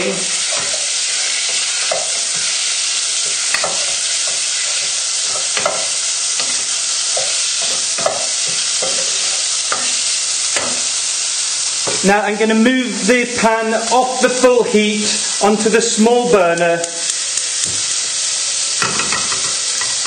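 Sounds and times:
utensil knocking stirring: 0:00.0 - 0:11.0
bacon sizzling in a pan: 0:00.0 - 0:20.0.

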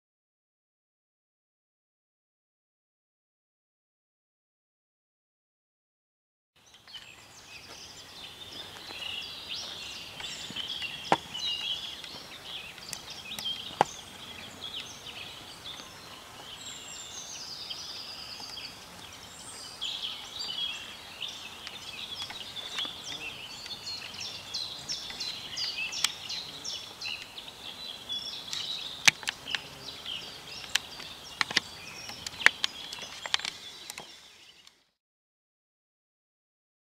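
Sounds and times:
birds chirping and singing: 0:06.6 - 0:34.9
sharp clicks: 0:28.5 - 0:29.7, 0:30.6 - 0:34.8.

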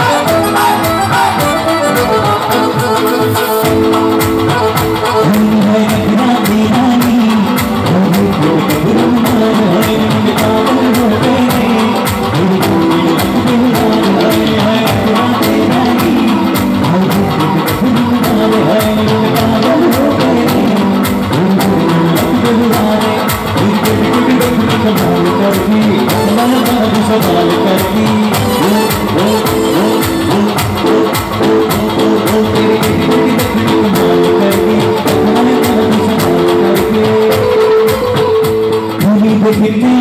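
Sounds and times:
live band with singing: 0:00.0 - 0:40.0.

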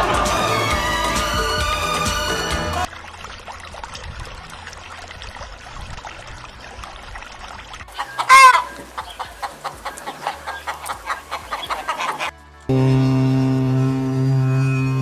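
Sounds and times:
chickens clucking: 0:07.9 - 0:12.3
chicken squawk: 0:08.0 - 0:12.3.

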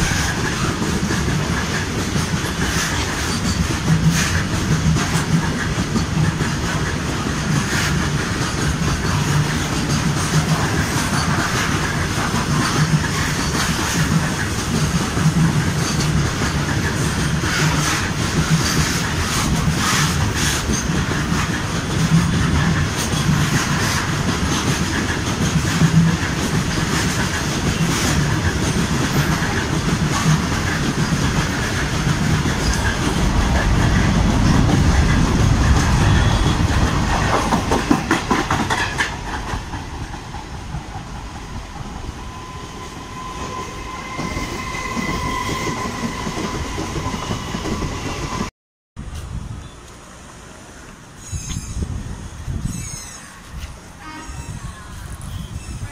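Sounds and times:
wheels clattering over rail joints: 0:00.0 - 0:41.5
freight wagons rolling past: 0:12.4 - 0:48.5.

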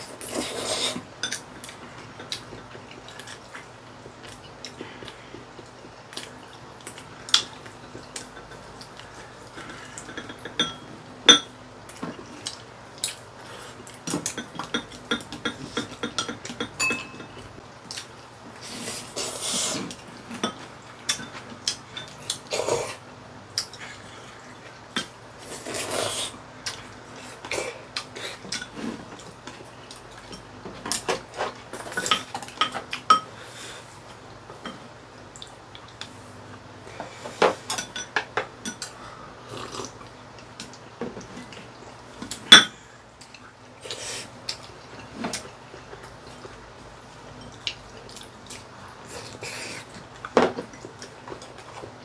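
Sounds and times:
chopsticks clinking on ceramic bowls: 0:14.4 - 0:17.5.

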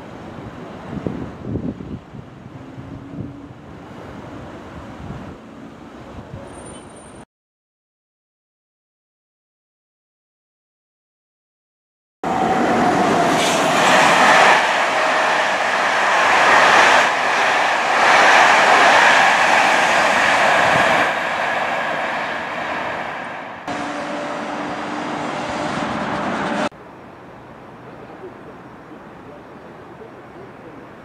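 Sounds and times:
train wheels rumbling on rail: 0:12.3 - 0:26.7.

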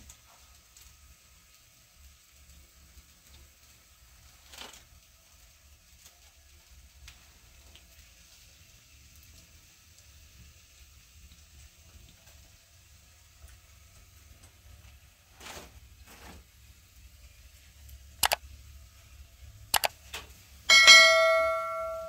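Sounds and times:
loud ringing metallic clang: 0:20.7 - 0:22.0.

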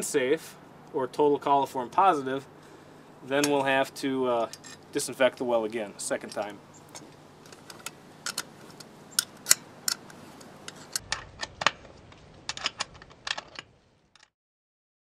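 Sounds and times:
metallic clicks and clinks: 0:06.2 - 0:11.9, 0:12.5 - 0:14.3.

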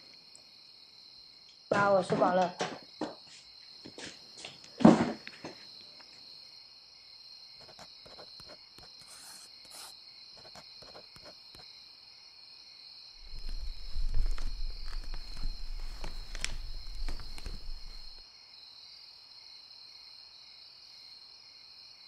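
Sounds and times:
crickets chirring: 0:12.9 - 0:18.7.

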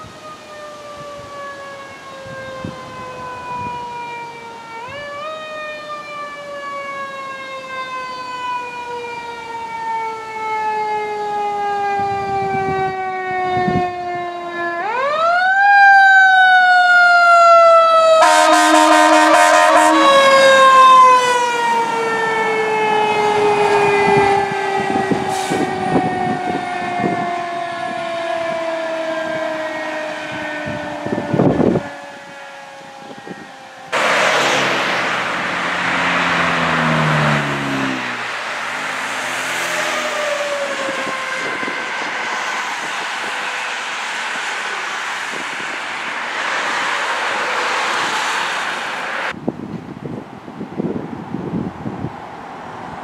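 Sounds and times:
fire truck siren winding: 0:00.0 - 0:34.0, 0:35.4 - 0:48.2
loud pulsing horn blast: 0:18.0 - 0:43.8.

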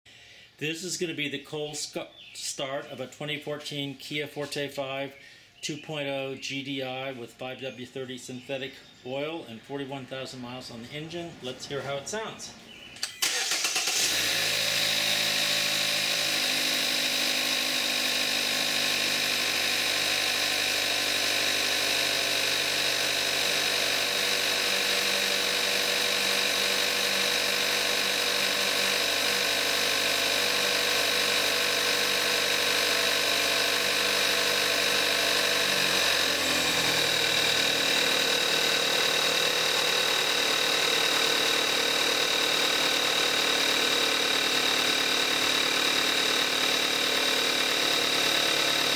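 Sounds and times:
car engine idling: 0:13.2 - 0:48.9.

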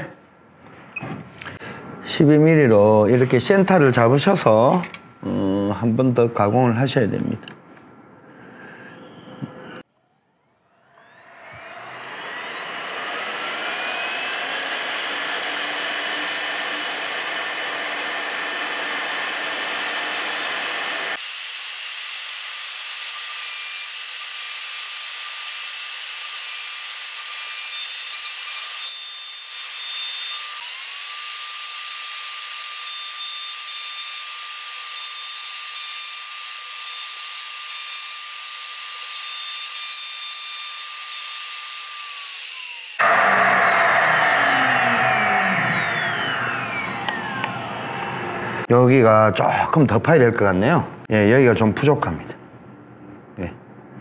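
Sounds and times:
router spindle high whine: 0:10.6 - 0:21.4, 0:25.2 - 0:48.7.

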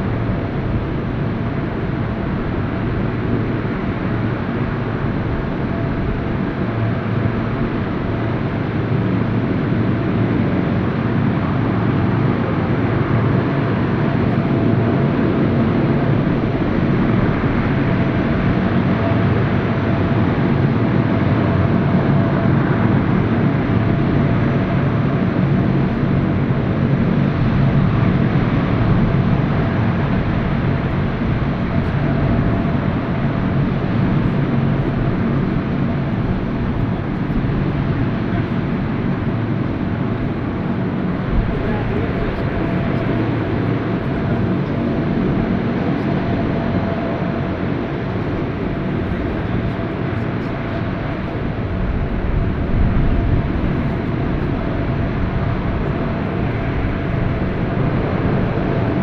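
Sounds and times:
high engine whine: 0:00.0 - 0:59.0
propeller drone: 0:00.0 - 0:59.0.

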